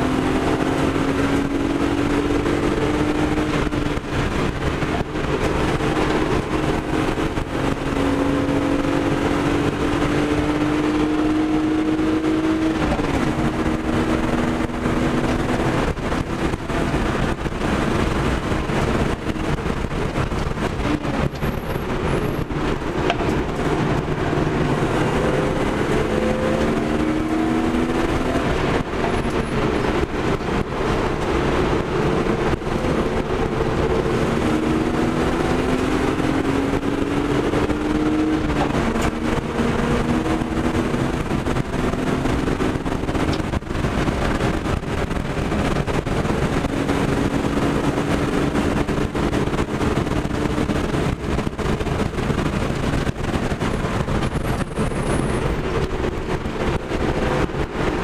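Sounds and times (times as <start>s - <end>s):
car engine accelerating: 0.0s - 58.0s
wind and road noise: 0.0s - 58.0s.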